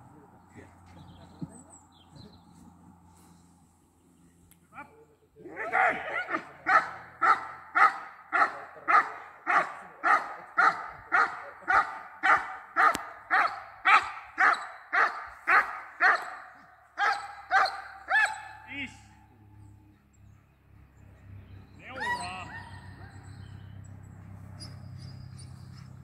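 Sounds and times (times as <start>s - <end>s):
dog barking rapidly: 5.6s - 18.6s.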